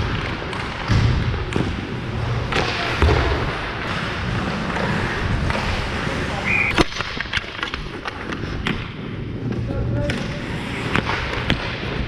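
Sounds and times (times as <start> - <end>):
hockey sticks and puck clacking: 0.0 - 12.0
skates scraping across ice: 0.0 - 12.0.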